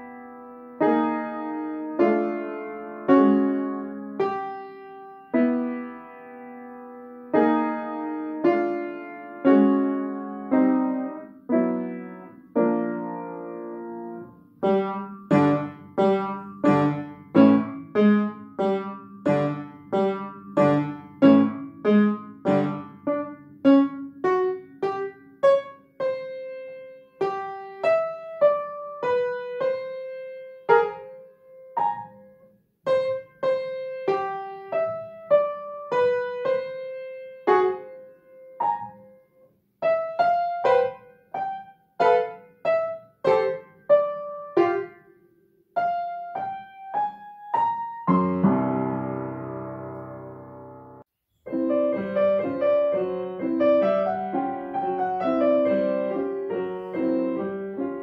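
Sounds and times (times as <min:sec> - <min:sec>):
grand piano chords: 0:00.0 - 0:58.0
upright piano melody: 0:00.0 - 0:58.0.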